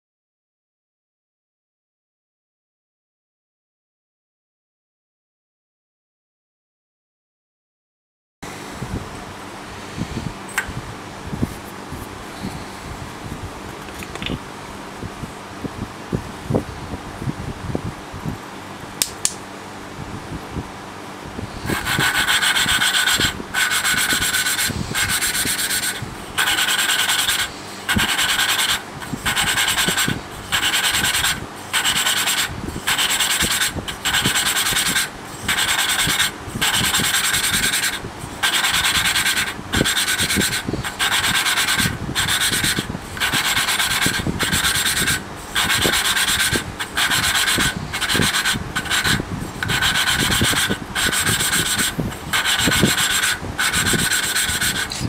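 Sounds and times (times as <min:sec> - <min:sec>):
valve lapping gritty rasping: 0:21.7 - 0:55.0.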